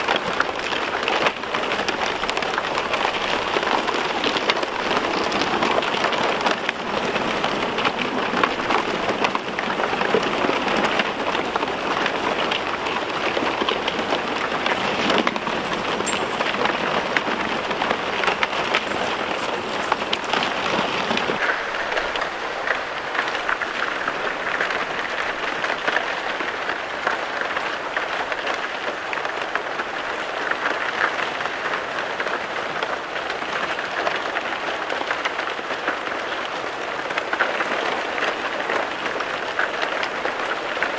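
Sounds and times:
low rumble of ice: 0:00.0 - 0:28.7
lake ice crackling and tinkling: 0:00.0 - 0:29.5.

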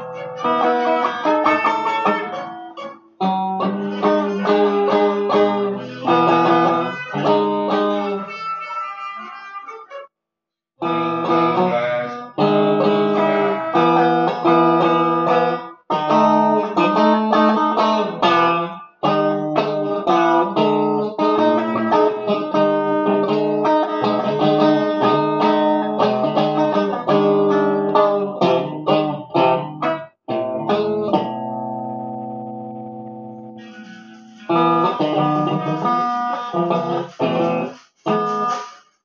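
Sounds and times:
electric guitar chords: 0:10.8 - 0:33.6.

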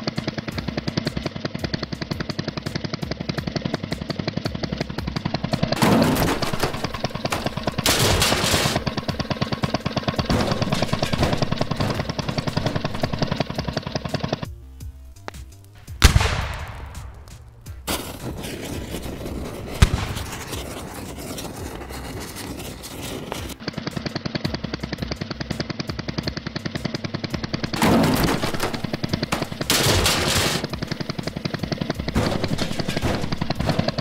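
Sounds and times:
crackling fire: 0:00.0 - 0:34.0
sharp bang: 0:15.8 - 0:19.1.

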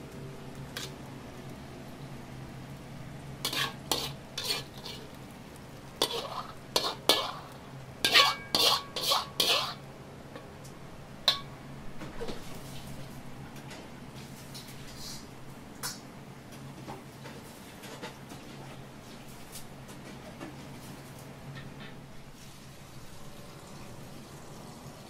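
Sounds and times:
metal ladle scraping wok: 0:00.7 - 0:01.0, 0:03.4 - 0:05.2, 0:06.0 - 0:09.8.

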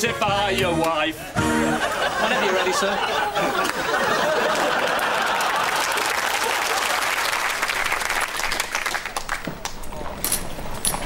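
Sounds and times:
studio audience applauding: 0:01.9 - 0:09.9.

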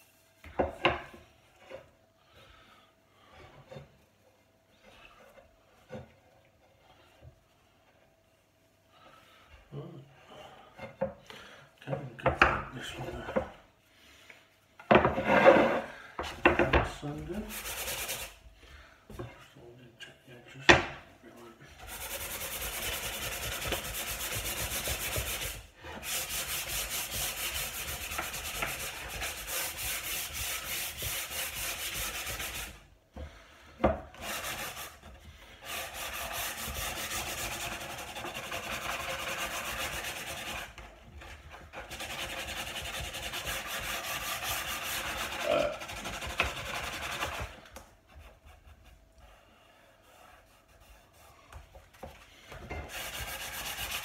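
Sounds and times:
sandpaper rubbing wood: 0:17.0 - 0:18.4, 0:21.8 - 0:32.9, 0:34.2 - 0:49.0, 0:50.0 - 0:51.4, 0:52.8 - 0:54.0.

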